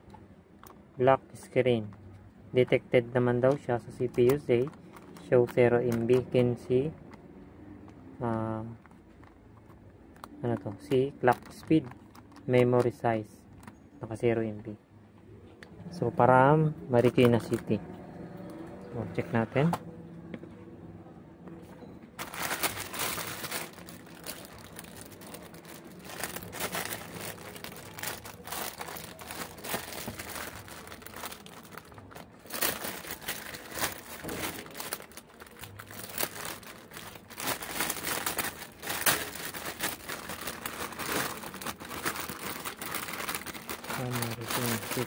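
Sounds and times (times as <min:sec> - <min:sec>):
plastic bag crinkling: 0:03.9 - 0:06.6, 0:10.2 - 0:13.0, 0:22.2 - 0:45.0.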